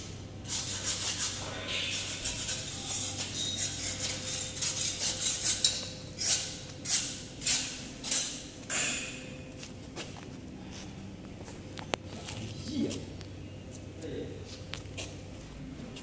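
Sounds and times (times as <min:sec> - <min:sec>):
footsteps scuffing on concrete: 0:09.5 - 0:13.0.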